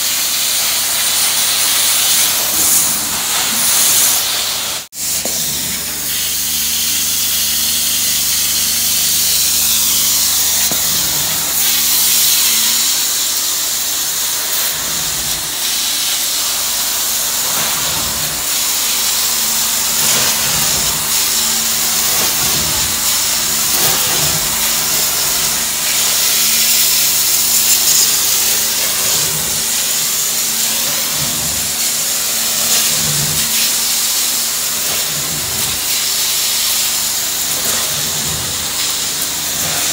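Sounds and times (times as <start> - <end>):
hiss of steam and suction: 0.0 - 39.9
low machine drone: 16.4 - 26.6.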